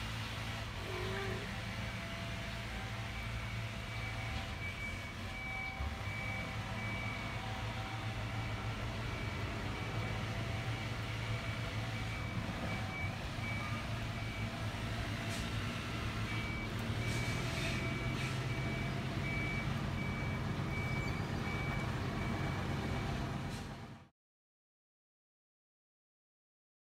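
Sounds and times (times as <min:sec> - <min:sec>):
high reversing beep: 0:03.1 - 0:23.2.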